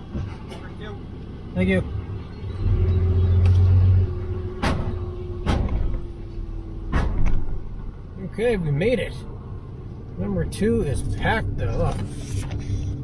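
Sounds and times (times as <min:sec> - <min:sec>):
truck engine pulling away: 0:00.0 - 0:13.0
sharp knocks: 0:04.6 - 0:06.0, 0:06.9 - 0:07.5.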